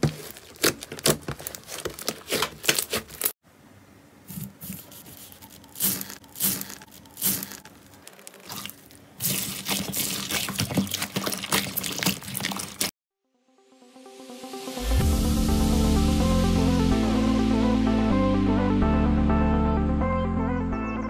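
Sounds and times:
hands squishing slime: 8.3 - 12.9.

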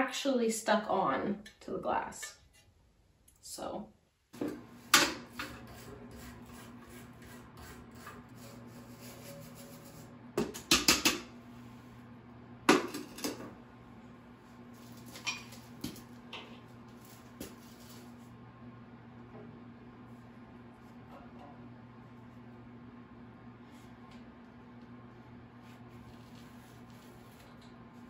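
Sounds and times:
steady low hum: 4.4 - 28.0
hand tool scraping metal: 5.4 - 10.1.

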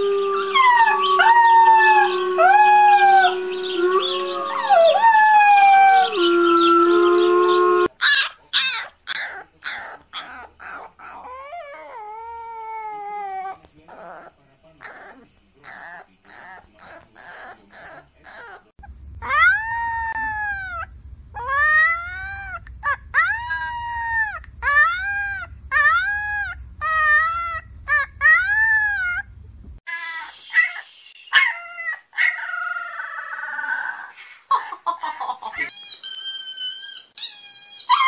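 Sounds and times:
puppy howling cries: 0.0 - 6.4, 7.9 - 29.3, 31.4 - 34.1, 35.6 - 38.0
puppies yipping: 7.8 - 20.8, 29.9 - 33.8, 34.5 - 38.0
puppy whining: 7.9 - 34.8, 35.4 - 38.0
low hum: 16.7 - 29.8.

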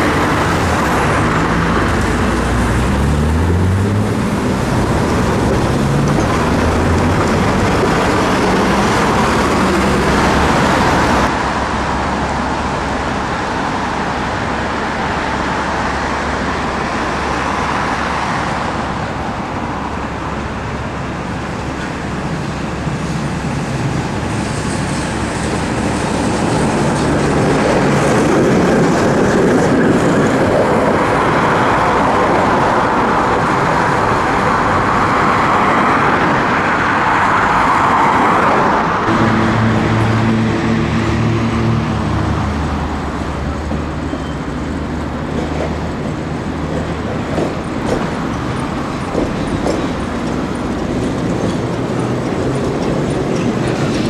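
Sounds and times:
vehicle pulling away: 0.0 - 11.3
street traffic: 0.0 - 54.0.

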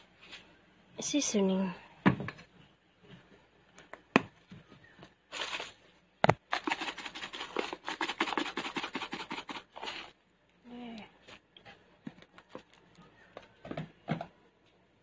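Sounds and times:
pepper grinder rasping: 6.5 - 10.1.

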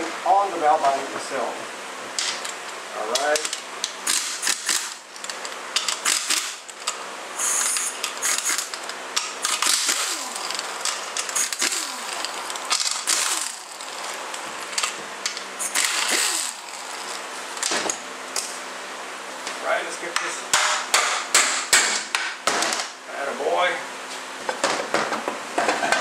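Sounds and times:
pneumatic impact wrench rattling: 3.2 - 18.6
air motor whine spinning down: 9.9 - 18.0.

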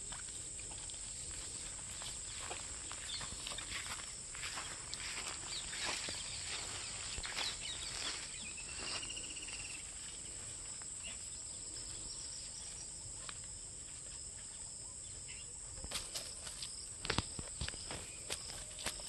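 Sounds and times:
footsteps through dry grass: 0.0 - 11.1, 15.8 - 19.0
high-pitched insect chorus: 0.0 - 19.0.

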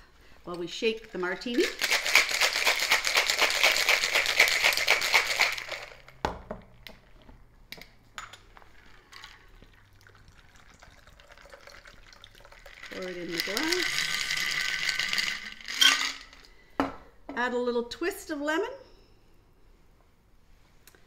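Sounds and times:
ice rattling in cocktail shaker: 1.0 - 6.2, 8.7 - 16.5.

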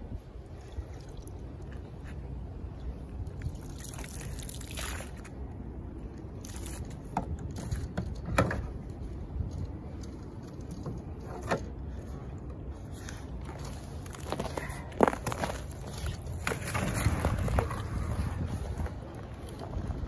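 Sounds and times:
low wind rumble: 0.0 - 20.0
water dripping and sloshing: 0.5 - 7.9.

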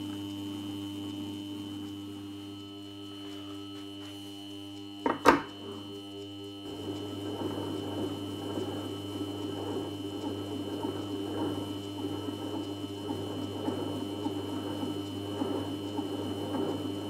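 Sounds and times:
polishing machine motor humming: 0.5 - 17.0.

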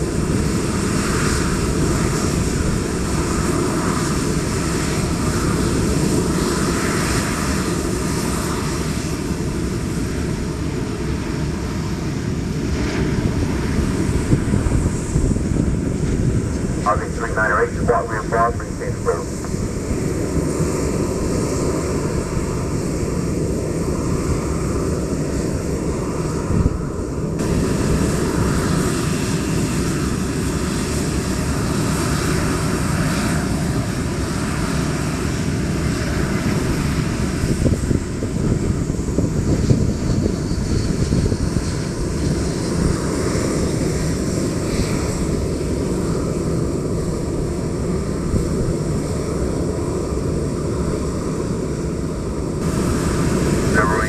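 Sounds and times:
jet engines roaring: 0.0 - 54.0.

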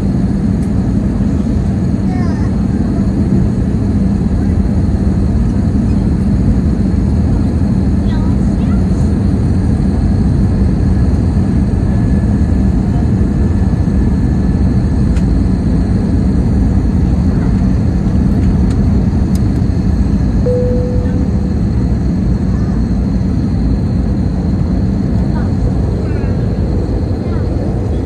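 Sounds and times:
jet engine drone: 0.0 - 28.0
steady low hum: 14.3 - 28.0
short faint tone: 20.5 - 21.9.

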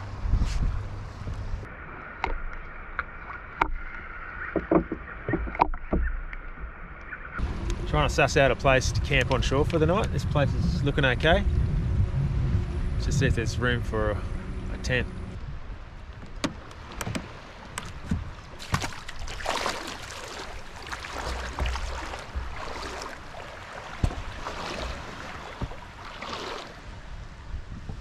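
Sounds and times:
knocks against wooden hull: 4.6 - 6.2, 16.2 - 26.7
water splashing around canoe: 14.7 - 28.0.

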